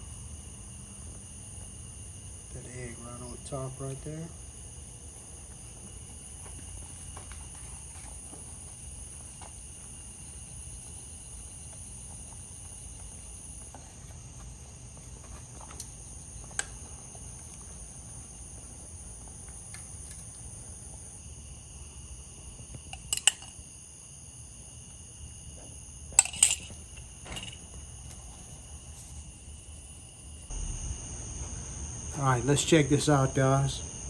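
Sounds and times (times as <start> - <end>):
crickets trilling: 0.0 - 34.0.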